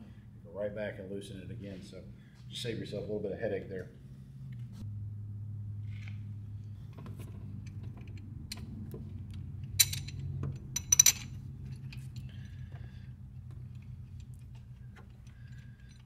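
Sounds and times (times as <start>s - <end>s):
steady low hum: 0.0s - 16.0s
metal bolts clinking on metal: 7.2s - 16.0s.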